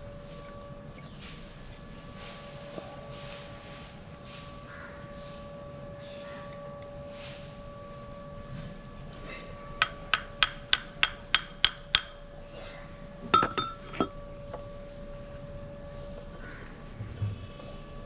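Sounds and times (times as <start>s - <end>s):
hammer tapping metal: 9.8s - 12.2s, 13.4s - 14.1s.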